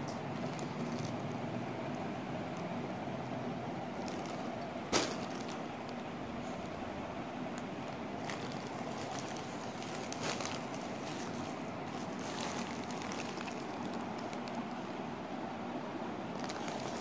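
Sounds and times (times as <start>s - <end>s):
plastic bags crinkling: 0.3s - 1.4s, 4.0s - 6.8s, 7.6s - 14.8s, 16.3s - 17.0s.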